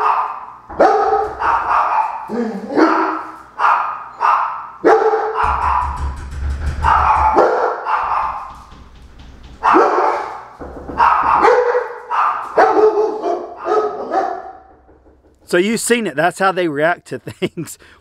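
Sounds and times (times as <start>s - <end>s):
dogs barking loudly: 0.0s - 5.8s, 9.6s - 14.8s.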